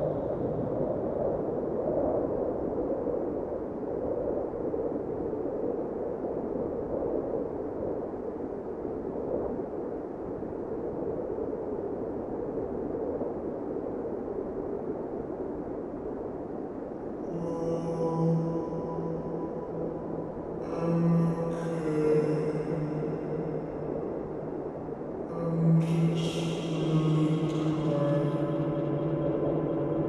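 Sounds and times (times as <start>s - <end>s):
dark rushing noise drone: 22.5s - 30.0s.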